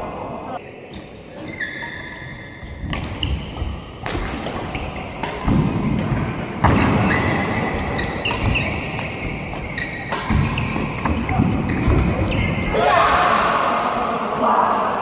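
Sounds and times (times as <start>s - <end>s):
shoes squeaking: 0.6s - 4.0s, 4.6s - 12.7s
rackets striking shuttlecock: 2.8s - 12.5s.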